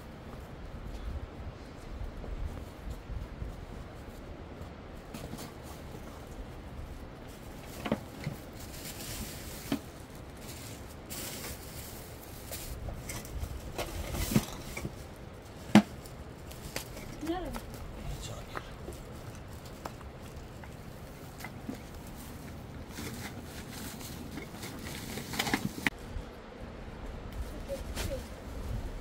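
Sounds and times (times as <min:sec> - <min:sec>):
low background rush: 0:00.0 - 0:29.0.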